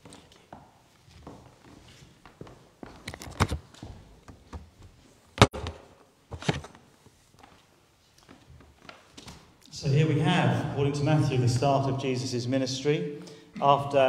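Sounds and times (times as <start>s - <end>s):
papers rustling: 6.3s - 6.9s.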